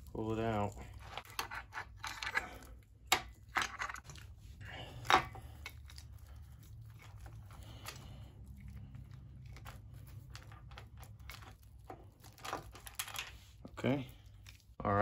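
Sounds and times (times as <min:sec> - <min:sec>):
metallic clinks and scrapes: 0:00.2 - 0:04.3.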